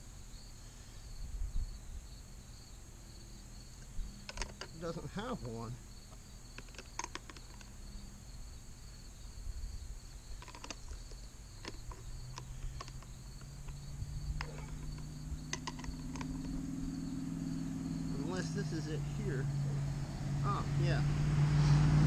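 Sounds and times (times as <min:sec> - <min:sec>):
insect chirring: 0:00.0 - 0:21.0
low engine hum: 0:11.8 - 0:22.0.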